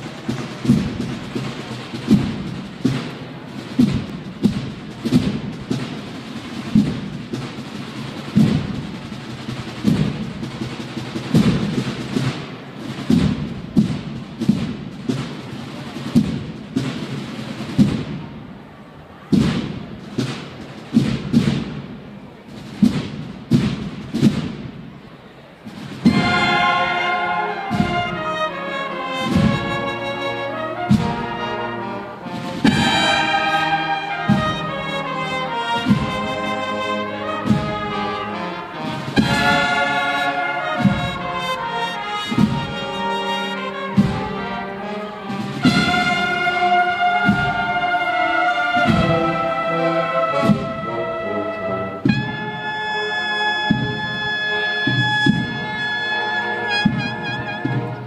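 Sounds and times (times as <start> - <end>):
bugles playing sustained chords: 0.0 - 13.4, 25.3 - 58.0
marching drums: 0.0 - 58.0.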